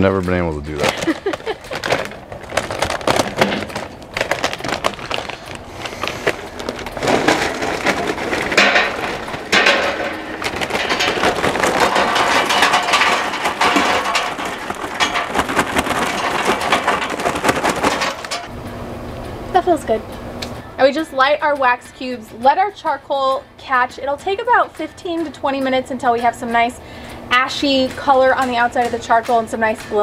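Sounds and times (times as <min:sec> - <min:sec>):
charcoal clattering onto metal grate: 0:00.7 - 0:18.6.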